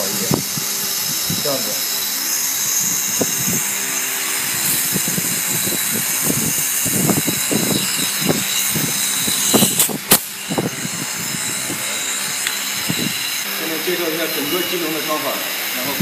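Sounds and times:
sharp click: 0:09.5 - 0:10.3.

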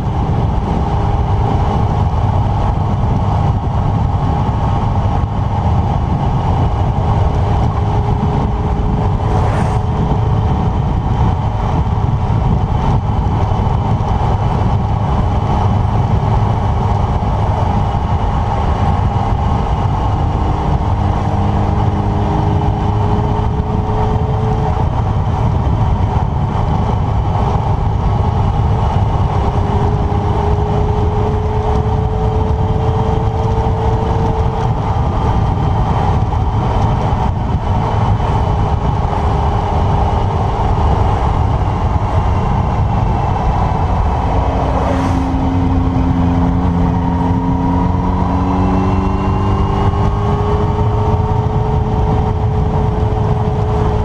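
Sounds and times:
motorcycle engine running: 0:00.0 - 0:54.0
wind rushing over microphone: 0:00.0 - 0:54.0.

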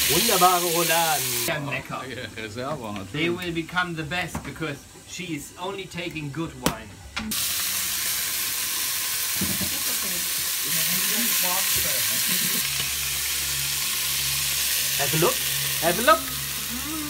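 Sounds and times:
meat sizzling in a pot: 0:00.0 - 0:03.9, 0:07.3 - 0:17.0.

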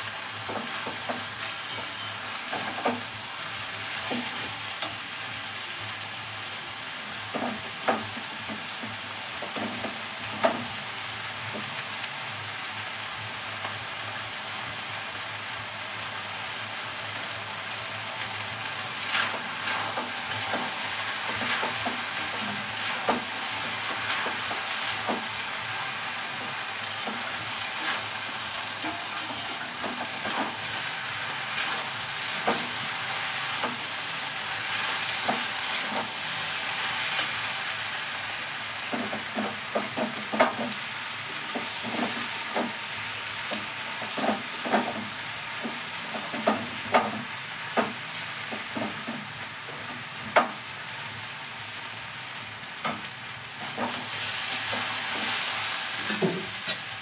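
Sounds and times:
food sizzling in pan: 0:00.0 - 0:57.0
metal spatula scraping pan: 0:01.3 - 0:02.8, 0:26.4 - 0:30.5.

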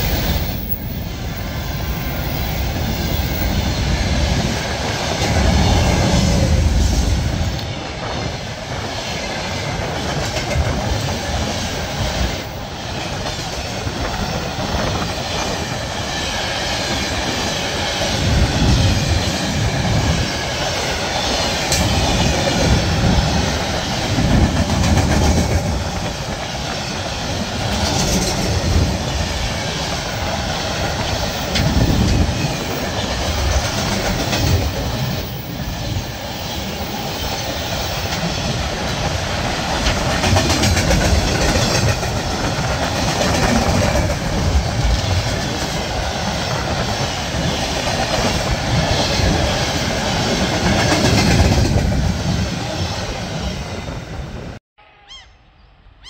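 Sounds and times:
train wheels clattering over rails: 0:00.0 - 0:52.8.

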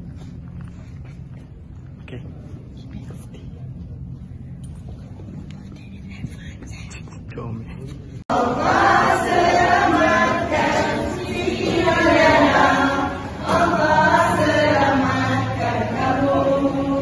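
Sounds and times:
choir singing: 0:08.3 - 0:17.0.

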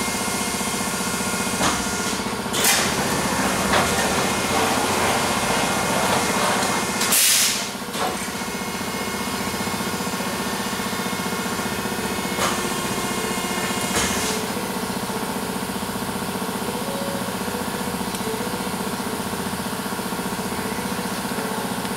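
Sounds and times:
machine motor hum: 0:00.0 - 0:21.9
air hiss bursts: 0:07.1 - 0:07.7.

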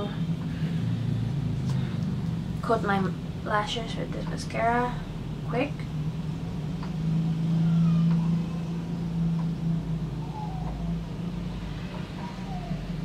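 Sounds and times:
low engine-like hum: 0:00.0 - 0:13.0
faint short gliding tones: 0:07.3 - 0:12.9.

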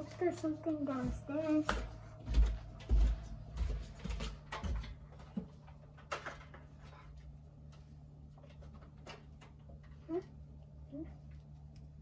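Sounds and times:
child's footsteps on wooden stairs: 0:00.7 - 0:05.6.

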